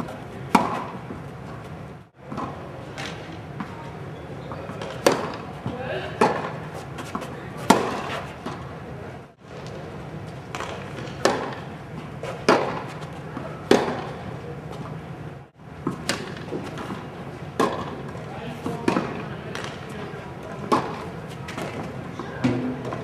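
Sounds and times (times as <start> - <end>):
tennis balls struck by rackets: 0.0 - 3.8, 4.5 - 8.7, 10.5 - 14.3, 15.8 - 20.0, 20.6 - 23.0
balls bouncing on court: 18.6 - 20.0.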